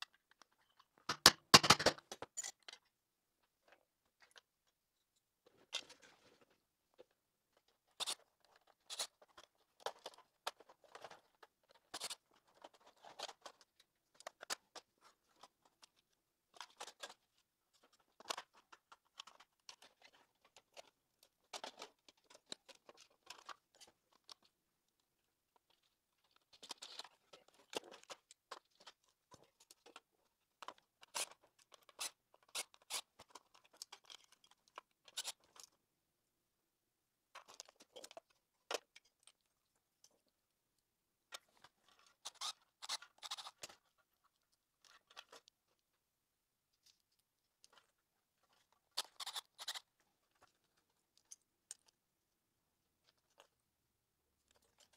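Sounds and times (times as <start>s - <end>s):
plastic parts and screws rattling: 0.0s - 2.9s, 7.9s - 24.5s, 25.6s - 35.8s, 37.3s - 39.4s.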